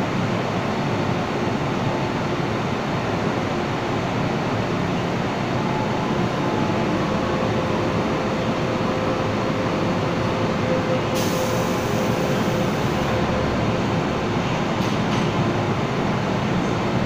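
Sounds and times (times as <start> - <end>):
train equipment humming: 2.3 - 17.0
train doors sliding shut: 11.0 - 15.6.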